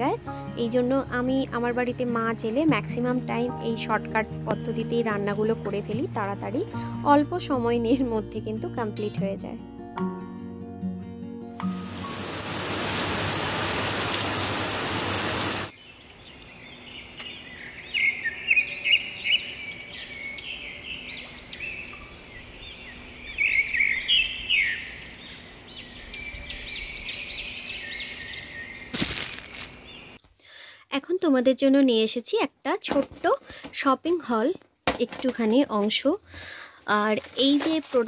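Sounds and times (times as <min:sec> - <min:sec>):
faint rain: 0:11.6 - 0:15.7
loud steady hiss: 0:11.8 - 0:15.7
birds chirping and calling: 0:15.2 - 0:30.2.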